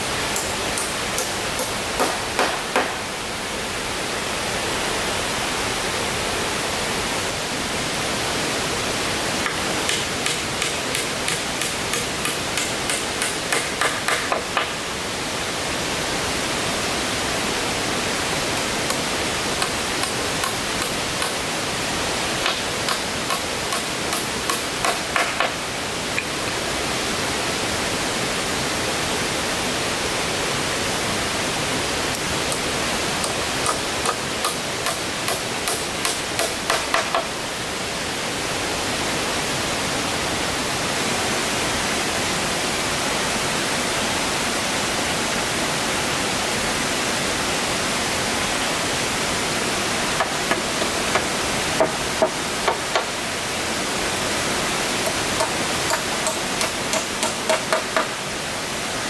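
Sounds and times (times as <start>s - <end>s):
steady background hiss: 0.0s - 59.0s
tool striking wood: 0.3s - 3.0s, 9.5s - 14.8s, 19.6s - 21.4s, 22.4s - 25.6s, 33.2s - 37.3s, 50.2s - 53.1s, 55.1s - 58.2s.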